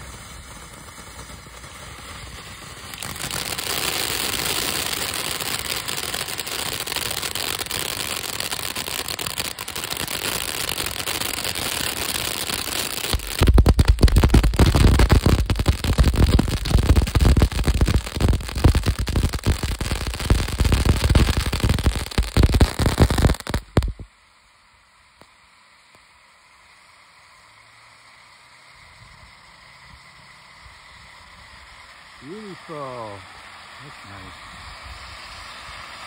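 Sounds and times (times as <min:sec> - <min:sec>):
firework crackling pops: 0:00.0 - 0:29.4
firework fountain hissing: 0:00.0 - 0:36.0.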